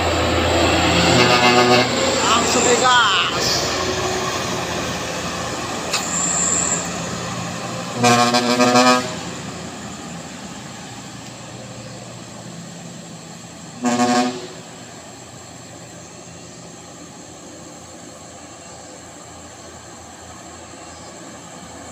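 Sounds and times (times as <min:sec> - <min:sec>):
diesel truck engine pulling hard: 0:00.0 - 0:21.9
vehicle horn toots: 0:01.1 - 0:02.8, 0:08.0 - 0:09.2, 0:13.8 - 0:14.7.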